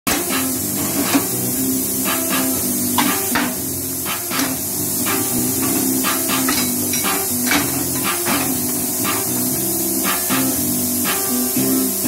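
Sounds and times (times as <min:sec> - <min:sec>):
background music: 0:00.1 - 0:12.0
metal clanks and knocks: 0:05.6 - 0:08.8.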